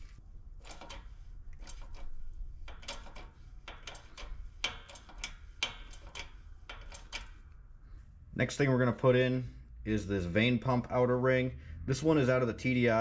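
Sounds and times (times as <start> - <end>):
metallic clicks and knocks: 0.6 - 7.6.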